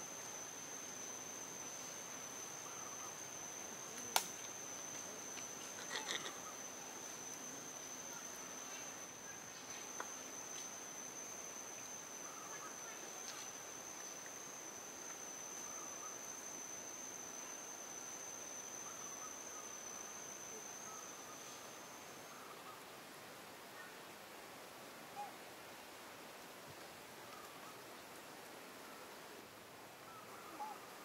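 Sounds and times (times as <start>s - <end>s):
high-pitched insect drone: 0.0s - 22.8s
faint chirps: 0.0s - 22.9s, 30.0s - 31.0s
faint outdoor hiss: 0.0s - 31.0s.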